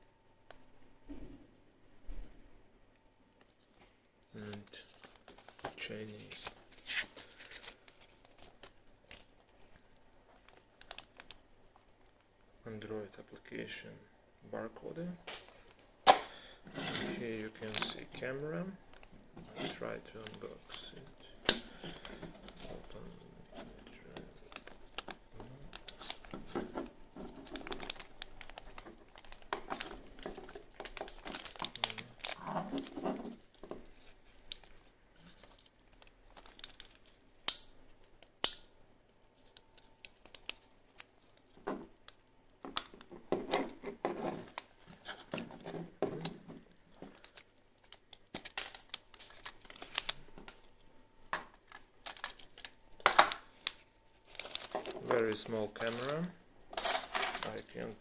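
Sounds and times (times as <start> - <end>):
plastic packaging rustling: 3.4 - 12.4, 15.2 - 38.4, 39.1 - 56.8.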